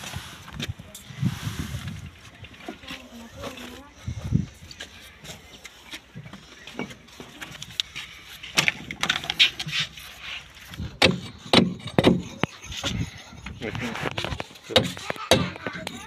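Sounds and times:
scraping on brick: 8.0 - 16.0.

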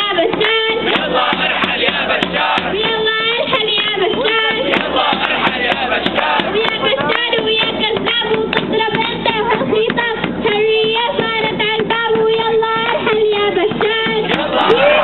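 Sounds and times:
girl singing into a microphone: 0.0 - 1.0, 2.6 - 4.8, 6.4 - 14.3
rhythmic hand clapping: 0.0 - 15.0.

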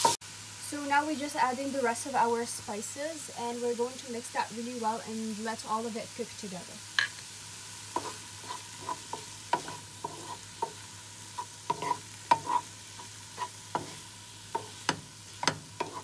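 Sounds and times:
soft sizzle: 0.0 - 16.0
spatula scraping a pan: 7.9 - 16.0.

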